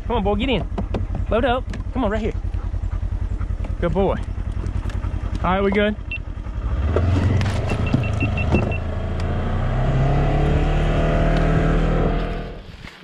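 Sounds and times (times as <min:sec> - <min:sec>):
vehicle engine accelerating: 0:01.1 - 0:13.0.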